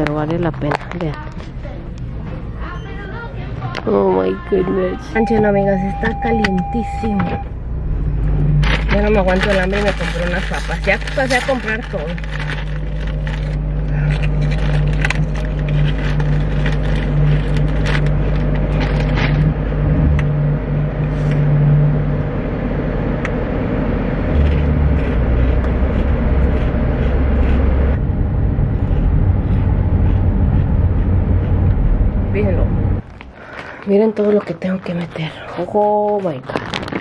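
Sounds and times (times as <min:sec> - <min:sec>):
car engine and road noise: 0:00.0 - 0:37.0
potato chip bag crinkling: 0:08.6 - 0:19.4, 0:36.1 - 0:37.0.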